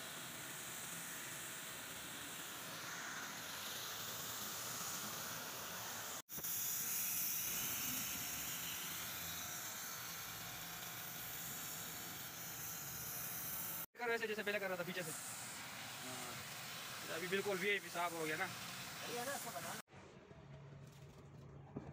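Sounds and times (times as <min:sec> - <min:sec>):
hose spraying water: 0:14.4 - 0:19.8.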